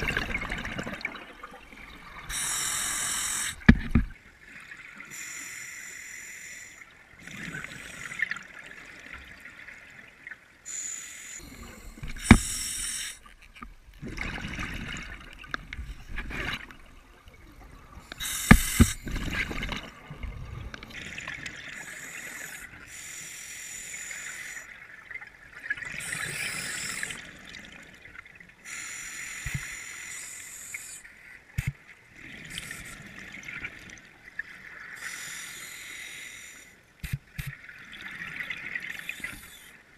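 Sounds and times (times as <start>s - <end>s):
scuba regulator breathing: 2.2s - 3.8s, 5.1s - 8.3s, 10.7s - 13.3s, 18.0s - 19.2s, 21.8s - 24.7s, 26.0s - 27.3s, 28.6s - 31.1s, 35.0s - 37.2s.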